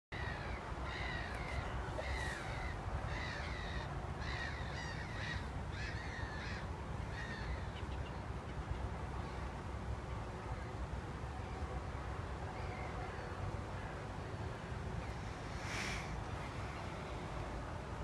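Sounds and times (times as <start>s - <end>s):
bird calling: 0.2s - 8.7s.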